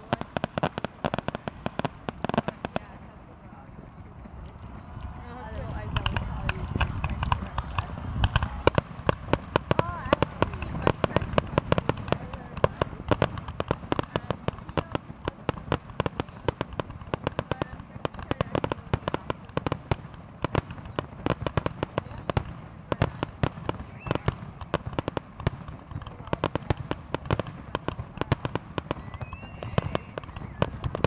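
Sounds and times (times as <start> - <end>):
fireworks bangs and crackles: 0.0 - 31.0
low rumble: 2.0 - 14.3.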